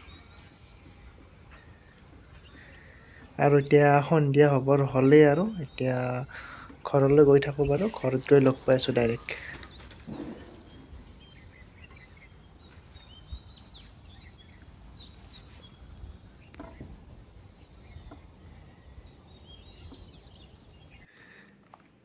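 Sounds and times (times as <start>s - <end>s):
low outdoor rumble: 0.0s - 15.0s
birds chirping and whistling: 0.0s - 21.1s.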